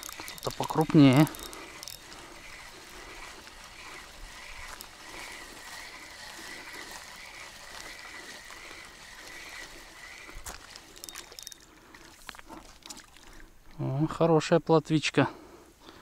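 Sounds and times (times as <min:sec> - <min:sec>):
reel click: 0:00.0 - 0:12.1
fishing reel whirring: 0:00.0 - 0:13.6
fish splashing: 0:00.0 - 0:13.7.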